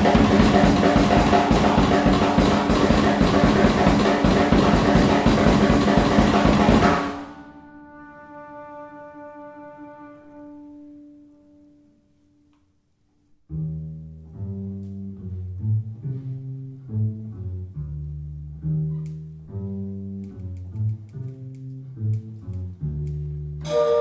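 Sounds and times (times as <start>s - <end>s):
double bass plucked pizzicato: 13.5s - 24.0s
saxophones holding a note: 23.6s - 24.0s.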